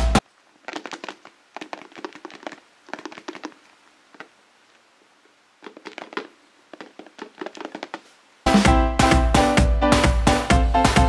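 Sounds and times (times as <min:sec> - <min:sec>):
hands kneading play dough: 0:00.0 - 0:04.4, 0:05.2 - 0:08.2.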